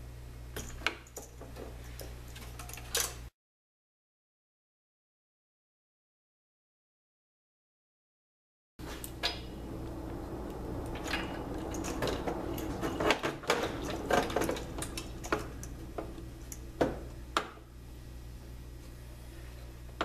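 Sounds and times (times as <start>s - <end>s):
small metal parts clicking and clinking: 0.6s - 3.3s
steady low hum: 8.8s - 20.0s.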